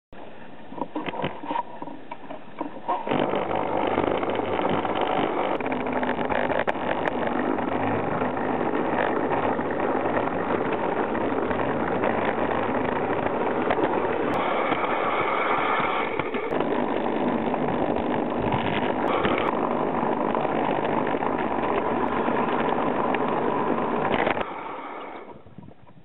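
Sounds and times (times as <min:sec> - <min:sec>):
model train running on track: 0:02.9 - 0:25.4.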